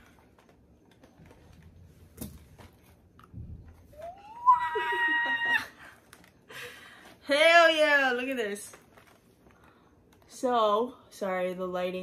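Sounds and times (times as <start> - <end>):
young woman's excited cry: 4.0 - 5.8.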